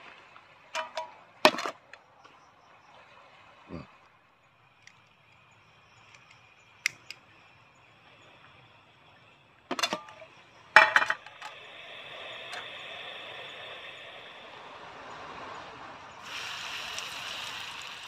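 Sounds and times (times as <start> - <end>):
frying pan clanking on burner: 0.8 - 1.7
burning gas hiss: 11.3 - 18.0.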